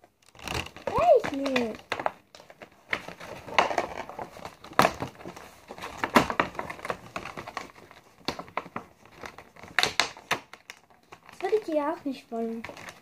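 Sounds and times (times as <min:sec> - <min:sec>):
cardboard and plastic rustling: 0:00.0 - 0:13.0
sharp plastic crackles: 0:00.0 - 0:13.0.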